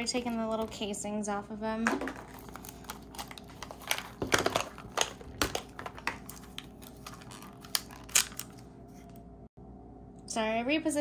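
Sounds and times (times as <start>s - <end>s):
wrapper crinkling: 2.1s - 9.1s.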